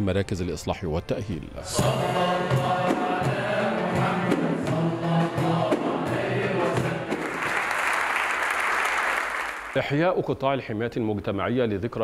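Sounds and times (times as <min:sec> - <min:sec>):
male choir singing in unison: 0:01.6 - 0:07.6
frame drums beat: 0:01.8 - 0:08.2.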